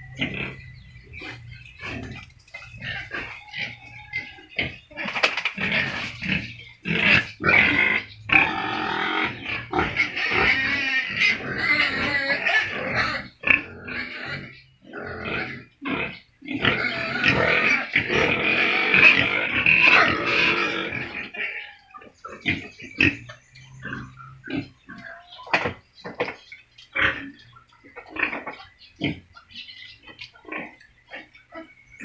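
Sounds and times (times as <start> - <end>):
pigs grunting and squealing: 0.0 - 32.0.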